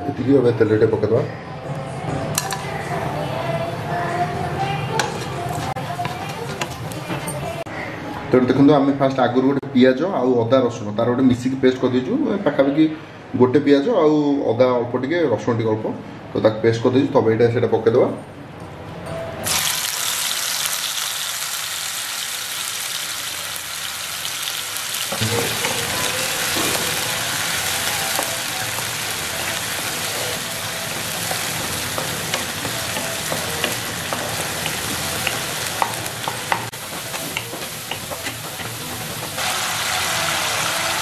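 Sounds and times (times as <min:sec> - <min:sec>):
paste sizzling in hot oil: 0:19.5 - 0:41.0
spatula scraping pan: 0:25.2 - 0:39.4.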